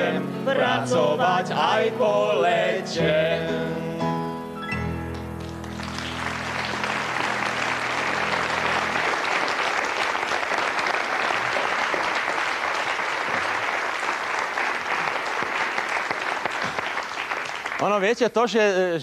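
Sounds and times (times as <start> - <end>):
studio audience applauding: 5.1 - 18.2.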